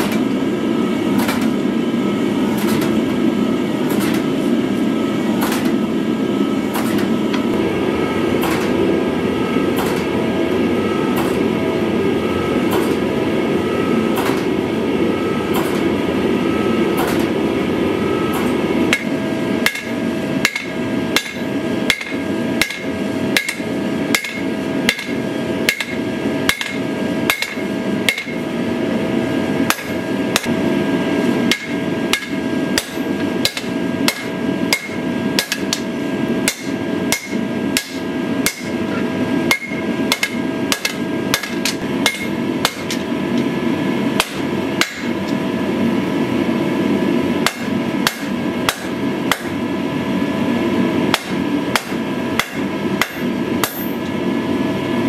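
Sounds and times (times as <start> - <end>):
hammer striking metal on anvil: 18.4 - 28.4, 29.7 - 30.5, 31.5 - 38.8, 39.5 - 43.0, 44.2 - 45.2, 47.4 - 49.6, 51.1 - 54.1.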